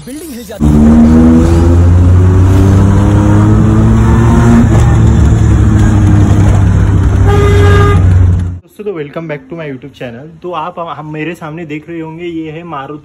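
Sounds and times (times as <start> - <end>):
car engine droning through loud exhaust: 0.6 - 8.6.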